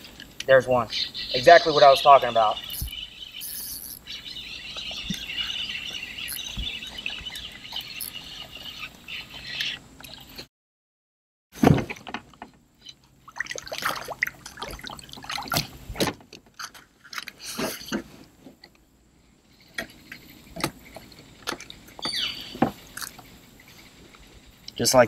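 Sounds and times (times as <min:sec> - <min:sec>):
water splashing: 0:13.2 - 0:15.9.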